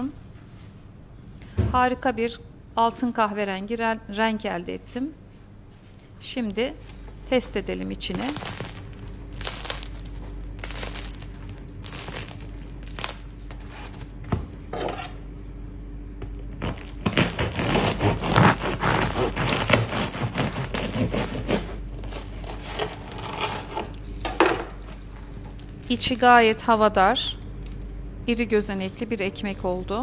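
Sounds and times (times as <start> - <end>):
crust crackling when handled: 7.9 - 14.2, 16.6 - 28.1
knife cutting crunchy bread crust: 8.1 - 14.0, 16.6 - 25.9.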